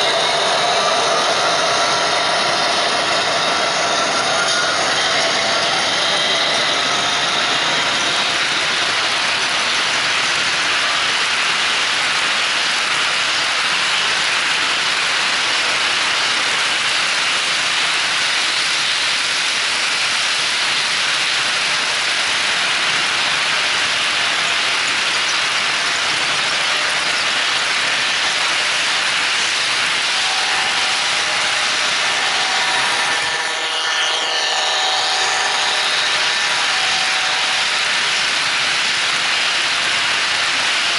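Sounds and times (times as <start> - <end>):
model train wheels rolling on rails: 0.0 - 40.9
steady tones: 28.1 - 39.0.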